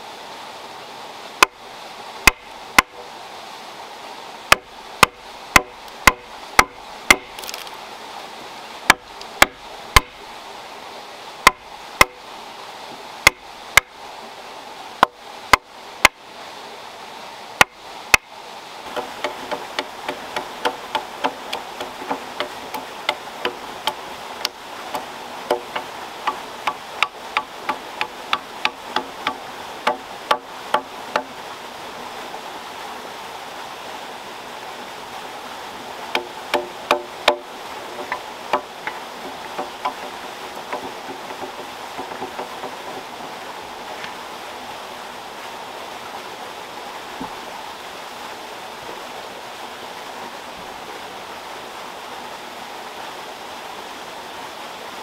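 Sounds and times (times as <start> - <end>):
steady hiss: 0.0 - 55.0
blade chopping at a log: 2.2 - 3.0, 4.5 - 7.7, 8.9 - 10.2, 11.4 - 12.2, 13.2 - 13.9, 15.0 - 16.2, 18.9 - 31.3, 36.1 - 43.1
chisel knocking into wood: 25.5 - 31.3, 36.1 - 43.0.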